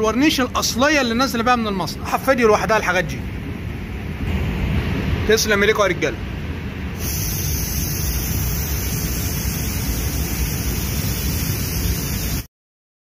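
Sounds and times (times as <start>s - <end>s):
spray gun hissing: 7.0s - 12.5s.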